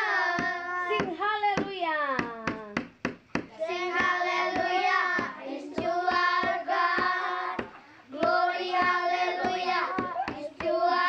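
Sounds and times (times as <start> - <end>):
children singing: 0.0 - 1.0, 3.5 - 11.0
hand claps: 0.0 - 11.0.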